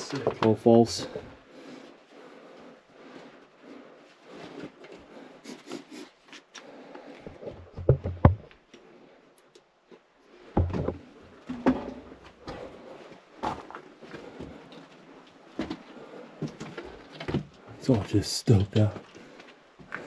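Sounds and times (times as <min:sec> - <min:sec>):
knocks and thumps: 0:07.4 - 0:08.6, 0:10.5 - 0:12.2
footsteps crunching on loose rock: 0:13.4 - 0:14.6.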